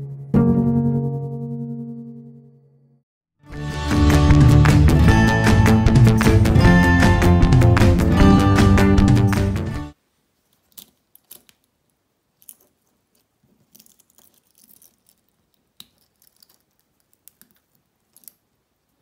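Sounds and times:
handling rustle: 10.2s - 19.0s
metal bracelet clicking and clinking: 12.4s - 12.8s, 13.6s - 18.4s.

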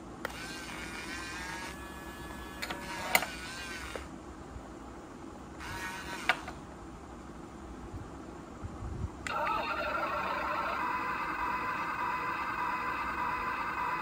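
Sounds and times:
toy excavator motors whining: 0.2s - 4.1s, 5.6s - 6.6s, 9.3s - 14.0s.

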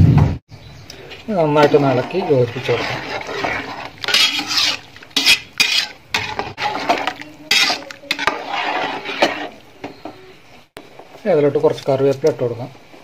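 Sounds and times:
ladle scraping metal pot: 0.9s - 10.2s.

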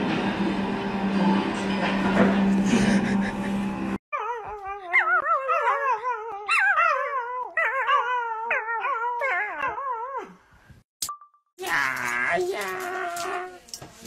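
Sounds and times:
puppy howling: 4.1s - 10.3s, 11.7s - 13.6s.

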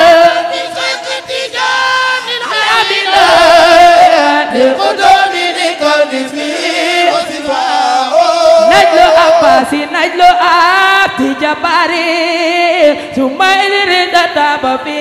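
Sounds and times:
chorus chanting devotional song: 0.0s - 15.0s.

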